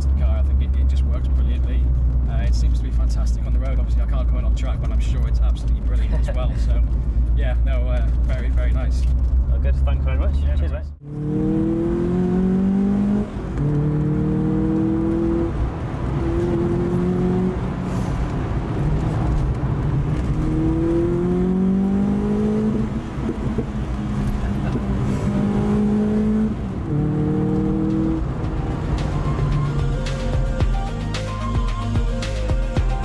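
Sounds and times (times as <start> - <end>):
car engine revving: 6.6 - 31.6.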